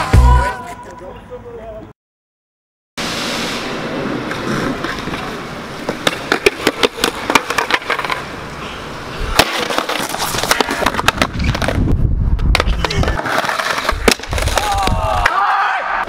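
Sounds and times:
skateboard wheels rolling: 0:03.0 - 0:16.0
skateboard clacks: 0:04.3 - 0:08.6, 0:09.3 - 0:15.4.

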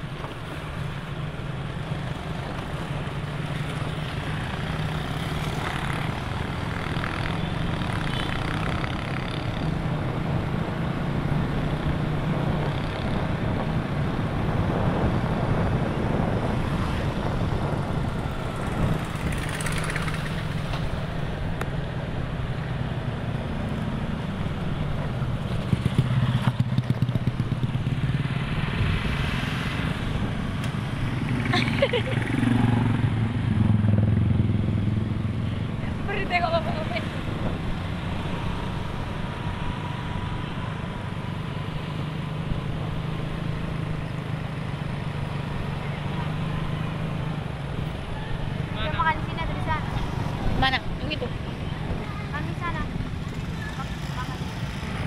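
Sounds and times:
road and wind noise: 0:00.0 - 0:55.0
motorcycle engine running: 0:17.7 - 0:21.1, 0:25.0 - 0:28.3, 0:50.2 - 0:55.0.

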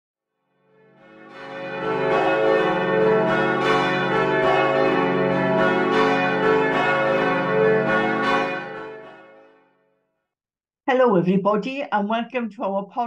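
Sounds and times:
church bells ringing a peal: 0:00.9 - 0:09.7.

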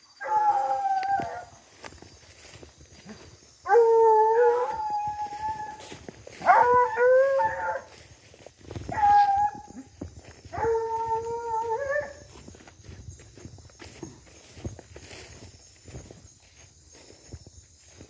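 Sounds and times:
hounds baying: 0:00.2 - 0:01.8, 0:03.0 - 0:12.6.

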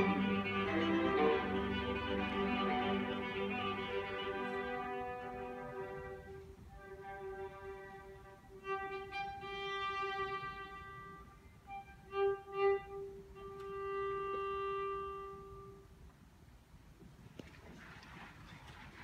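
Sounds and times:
solo violin with orchestra: 0:00.0 - 0:16.0.

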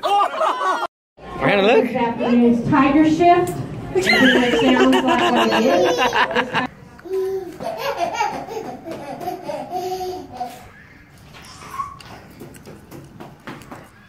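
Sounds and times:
child laughing hard: 0:04.0 - 0:06.7, 0:07.6 - 0:10.6
small child squealing and babbling: 0:11.4 - 0:12.2.

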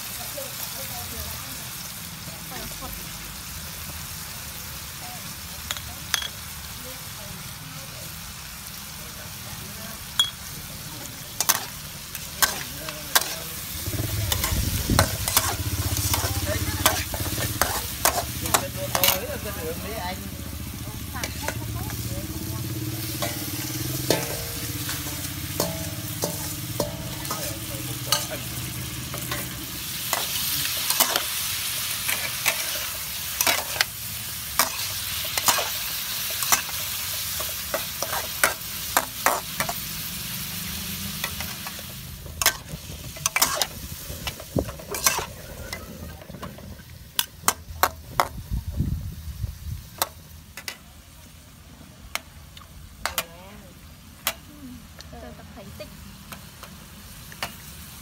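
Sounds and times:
hot oil sizzling: 0:00.0 - 0:58.0
metal spatula clinking on wok: 0:05.7 - 0:06.4, 0:10.2 - 0:10.5, 0:23.2 - 0:31.2.

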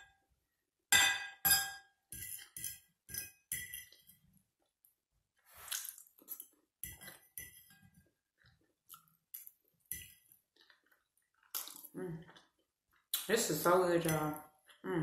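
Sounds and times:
person chewing: 0:05.5 - 0:13.3.

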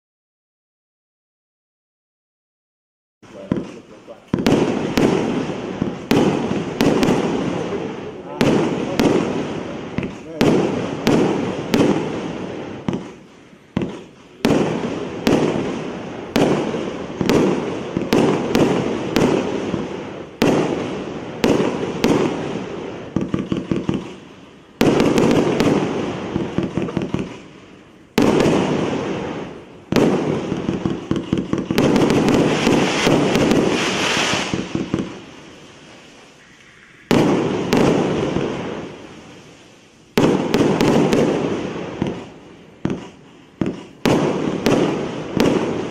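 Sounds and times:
fireworks launching and bursting: 0:03.2 - 0:45.9.

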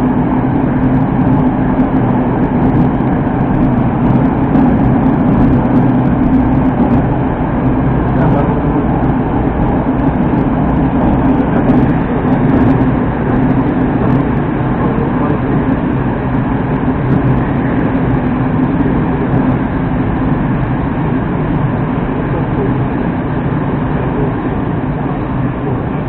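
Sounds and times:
metro train rumbling in tunnel: 0:00.0 - 0:26.0.

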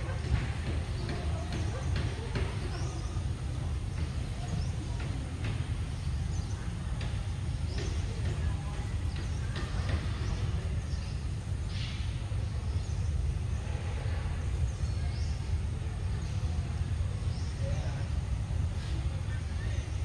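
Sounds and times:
faint higher hisses: 0:10.1 - 0:20.0.

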